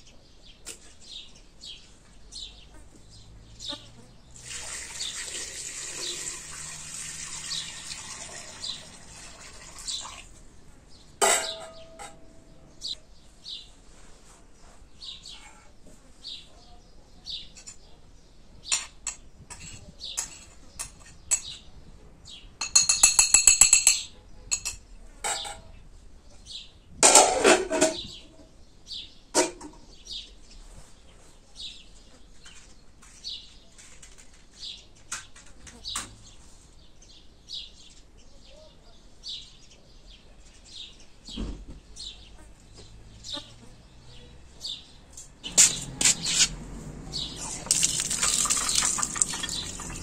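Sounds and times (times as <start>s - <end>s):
small birds chirping: 0.0s - 6.3s, 7.3s - 14.0s, 14.6s - 22.9s, 28.0s - 50.0s
water pouring into metal pot: 4.4s - 10.4s, 47.4s - 50.0s
metal cookware clinking: 11.2s - 12.4s, 22.6s - 25.7s, 27.0s - 28.1s, 47.4s - 50.0s.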